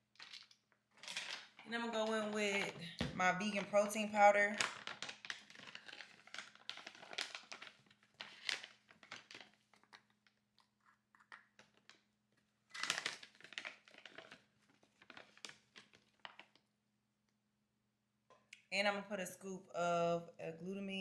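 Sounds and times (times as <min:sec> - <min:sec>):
package crinkling and rustling: 0:00.1 - 0:02.8, 0:03.4 - 0:16.7.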